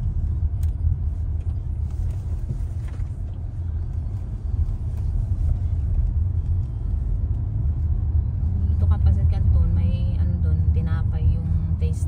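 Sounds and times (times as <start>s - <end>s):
car cabin road rumble: 0.0s - 12.0s.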